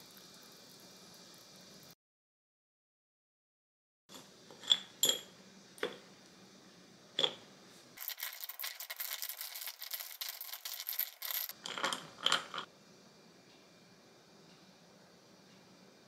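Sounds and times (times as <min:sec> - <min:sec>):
drink fizzing and crackling: 0:08.0 - 0:12.7.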